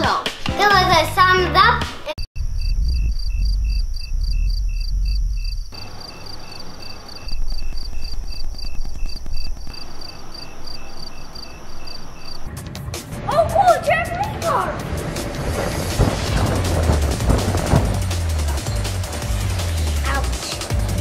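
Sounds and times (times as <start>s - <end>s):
low rumble: 2.4s - 9.8s, 14.8s - 20.0s
crickets chirping: 2.4s - 12.5s.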